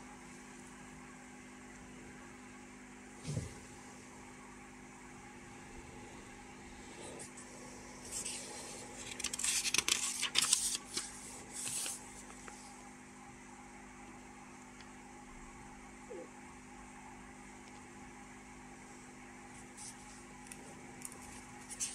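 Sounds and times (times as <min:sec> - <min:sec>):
faint steady hum: 0:00.0 - 0:21.9
paper pages rustling: 0:07.2 - 0:12.8, 0:19.8 - 0:21.9.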